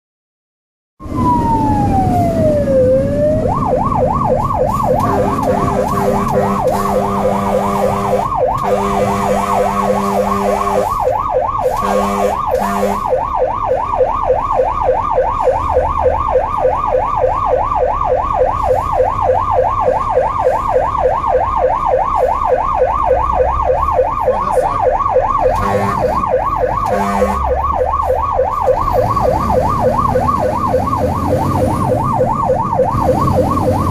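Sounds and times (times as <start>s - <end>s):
fire engine siren wailing and yelping: 1.0s - 33.9s
low horn blasts: 5.0s - 13.2s, 25.4s - 27.6s.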